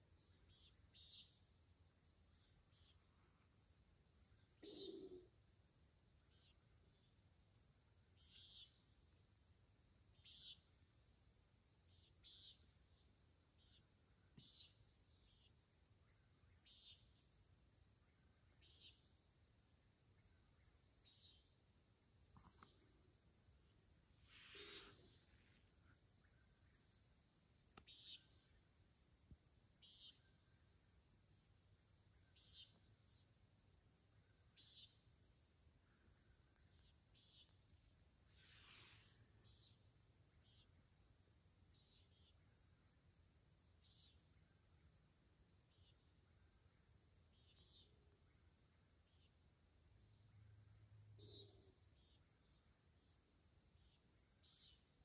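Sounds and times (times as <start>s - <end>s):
scratchy high insect call: 0.1s - 5.5s, 6.2s - 7.1s, 8.0s - 11.1s, 11.8s - 19.2s, 20.2s - 43.0s, 43.8s - 49.4s, 53.8s - 55.0s
high-pitched animal chirp: 4.6s - 5.3s
small click: 27.7s - 28.0s.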